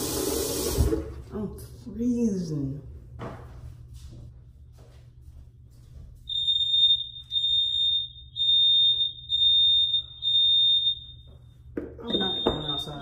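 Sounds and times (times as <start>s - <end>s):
fire alarm beeping: 6.3s - 13.0s.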